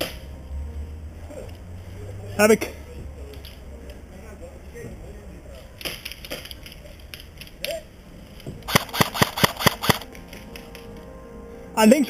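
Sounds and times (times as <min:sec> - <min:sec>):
airsoft gun shots: 0:08.7 - 0:10.1.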